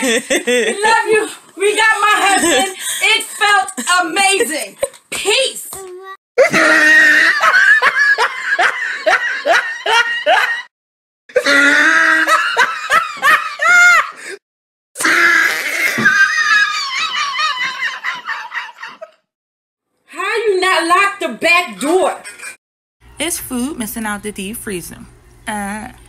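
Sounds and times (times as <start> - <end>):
people laughing hard: 6.4 - 10.7, 11.4 - 14.4, 15.2 - 19.2.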